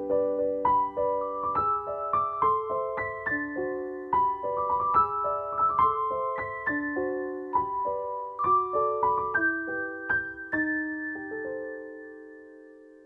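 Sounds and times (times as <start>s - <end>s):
gentle piano tune: 0.0s - 13.0s.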